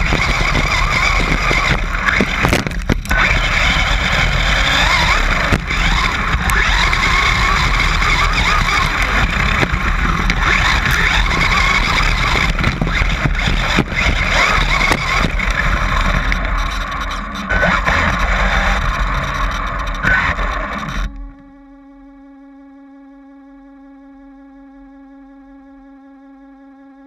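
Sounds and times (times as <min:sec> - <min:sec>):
tyres rumbling over stones: 0:00.0 - 0:20.8
electric motor whine: 0:00.0 - 0:27.0.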